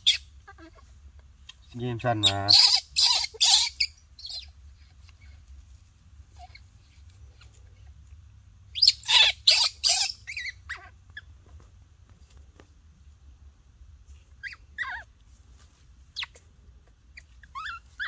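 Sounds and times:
baby monkey squealing: 0:00.0 - 0:00.8, 0:02.2 - 0:05.4, 0:06.3 - 0:06.7, 0:08.7 - 0:11.3, 0:14.4 - 0:15.1, 0:16.2 - 0:16.4, 0:17.1 - 0:18.0.

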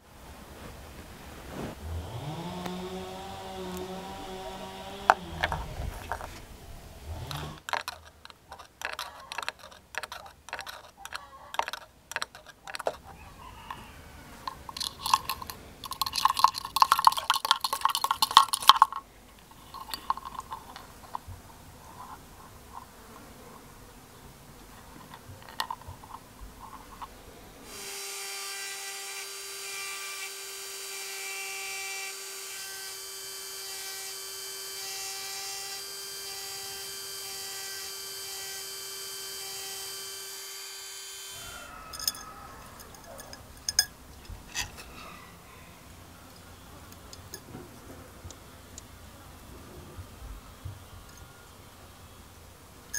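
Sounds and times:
mini drill whining: 0:02.0 - 0:06.4, 0:07.1 - 0:08.0, 0:27.7 - 0:43.0
scratchy clicking: 0:07.2 - 0:13.8, 0:14.4 - 0:21.3.

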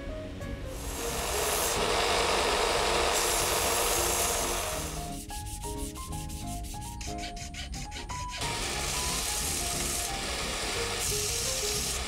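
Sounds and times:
light background music: 0:00.0 - 0:12.0
belt sander rasping: 0:00.8 - 0:12.0
short rubbing strokes: 0:03.2 - 0:10.0.

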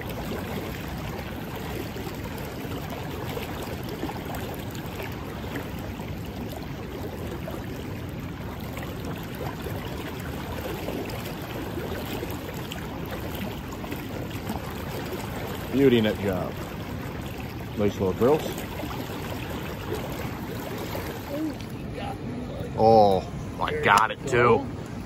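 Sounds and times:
river current rushing: 0:08.9 - 0:25.0.

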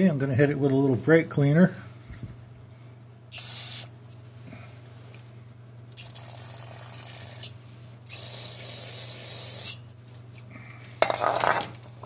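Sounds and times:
aerosol spray hissing: 0:03.4 - 0:03.9.

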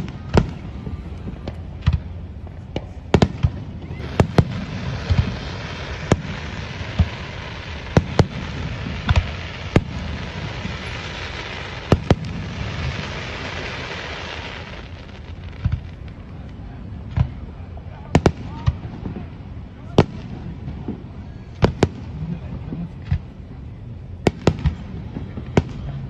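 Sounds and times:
firework crackle: 0:00.0 - 0:26.0
firework shells bursting: 0:03.2 - 0:16.1.

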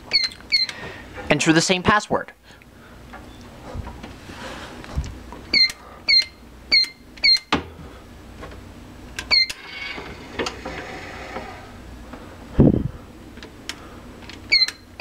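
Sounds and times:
mechanical whirring: 0:09.2 - 0:11.9.

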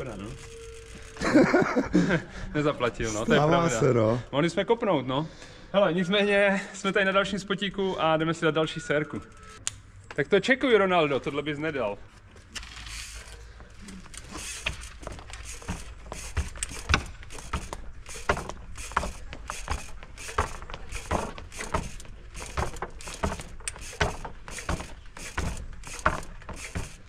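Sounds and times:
light bike rattling: 0:00.0 - 0:03.8, 0:12.4 - 0:27.0
bike landing knocks: 0:14.3 - 0:27.0.

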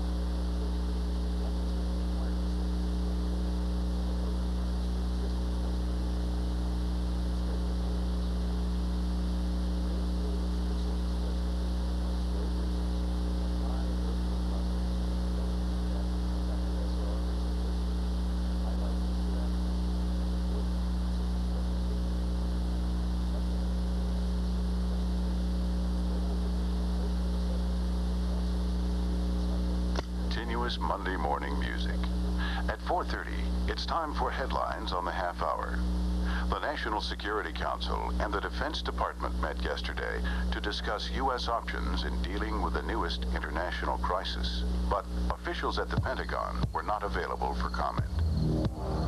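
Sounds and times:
electrical mains hum: 0:00.0 - 0:49.0.

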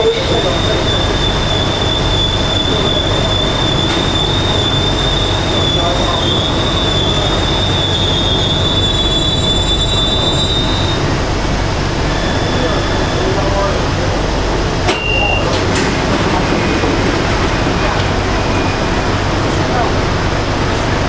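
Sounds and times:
high-pitched squeal of running gear: 0:00.0 - 0:11.1, 0:12.0 - 0:13.8, 0:14.9 - 0:15.6, 0:17.8 - 0:19.1
subway train running rumble: 0:00.0 - 0:21.0.

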